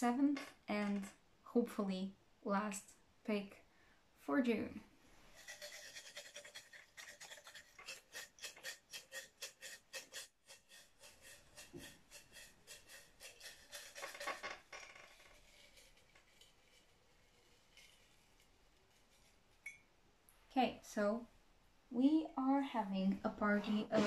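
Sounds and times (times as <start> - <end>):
paper rattling in shaken mug: 5.4 - 19.3.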